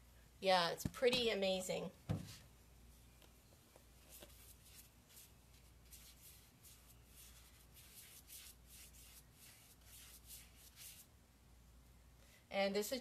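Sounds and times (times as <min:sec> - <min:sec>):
small brush scratching on wood: 0:04.0 - 0:11.1.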